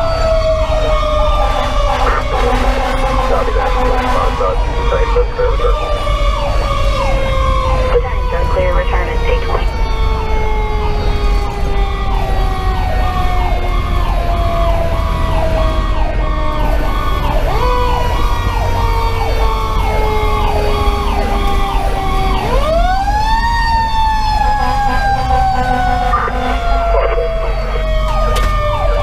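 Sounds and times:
diesel engine rumble: 0.0 - 29.0
electronic siren yelping: 0.0 - 29.0
mechanical siren wailing: 0.0 - 29.0.

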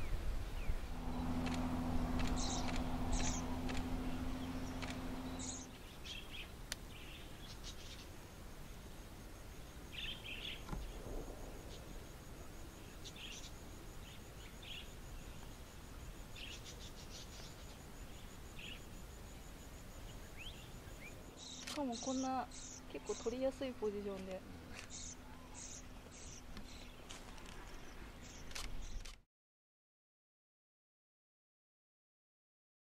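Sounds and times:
low steady hum: 0.0 - 29.1
budgerigars chirping: 1.1 - 8.1, 20.1 - 27.1.

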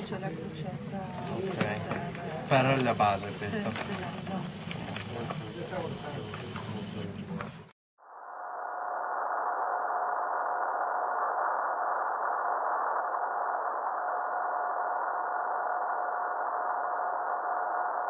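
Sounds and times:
fainter higher tone: 8.0 - 18.0
steady electronic tone: 8.0 - 18.0.

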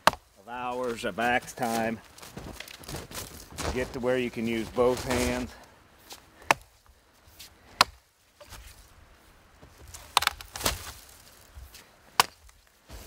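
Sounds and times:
axe chopping wood: 0.0 - 0.3, 6.4 - 6.7, 7.7 - 8.0, 10.0 - 11.0, 12.2 - 12.5.

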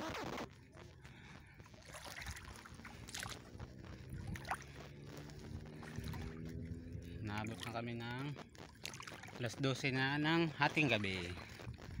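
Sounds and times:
seawater sloshing and splashing: 1.7 - 4.9, 5.8 - 6.5, 8.7 - 9.4.

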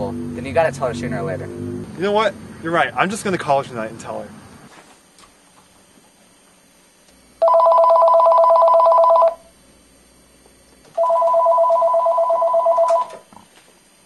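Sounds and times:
cordless phone ringing: 7.4 - 9.4, 11.0 - 13.2.

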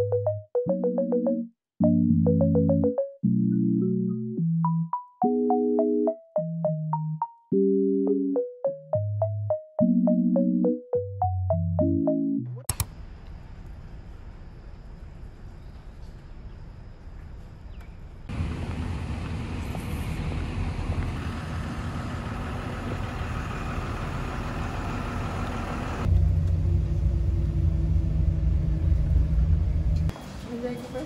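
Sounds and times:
traffic noise: 12.7 - 31.0
vehicle engine droning in cabin: 17.8 - 31.0.

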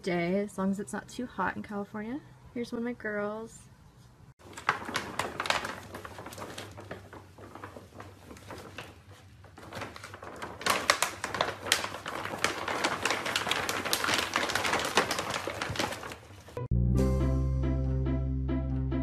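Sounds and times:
plastic bag crinkling: 4.4 - 16.6.

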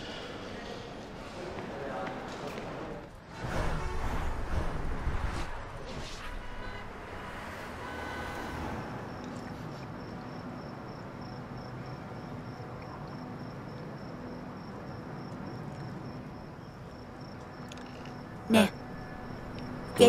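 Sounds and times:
crickets chirping: 6.7 - 20.0
low steady background noise: 9.1 - 20.0.

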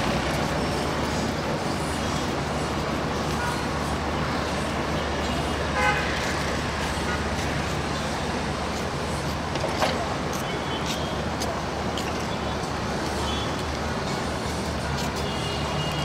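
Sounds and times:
city road traffic: 0.0 - 16.0
vehicle horn toot: 5.7 - 6.1.

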